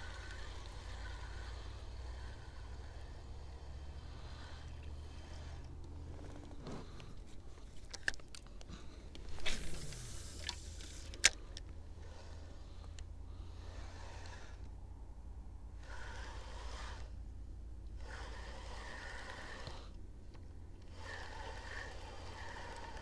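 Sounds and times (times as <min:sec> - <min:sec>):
fishing reel cranking: 0:00.0 - 0:06.0, 0:18.0 - 0:19.9, 0:20.8 - 0:23.0
low steady rumble: 0:00.0 - 0:23.0.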